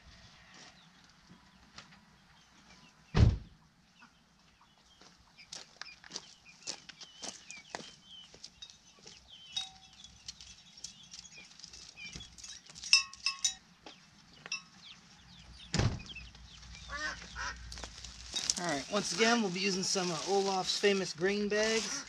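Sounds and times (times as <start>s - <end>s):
small birds chirping: 0.6s - 22.0s
chickens clucking: 16.2s - 18.2s.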